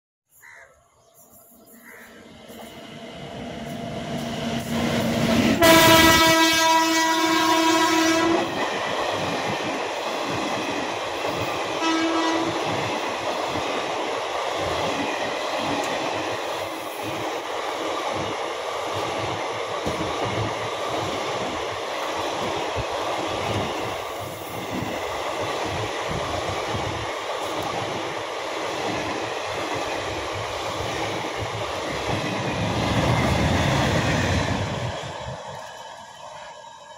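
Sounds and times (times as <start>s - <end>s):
locomotive horn: 5.6s - 8.5s, 11.8s - 12.6s.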